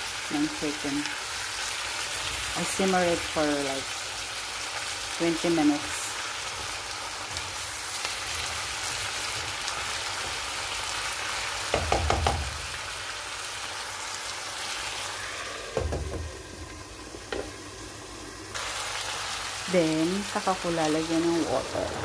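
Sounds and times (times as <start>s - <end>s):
food sizzling in a pan: 0.0s - 22.0s
spatula knocking and clattering: 11.7s - 12.6s.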